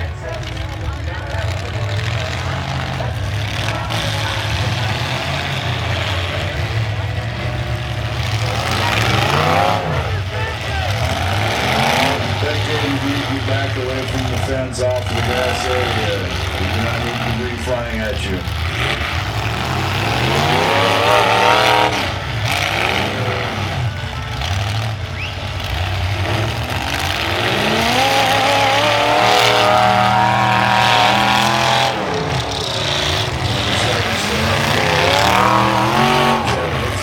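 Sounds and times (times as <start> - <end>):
car engines revving hard: 0.0 - 37.0.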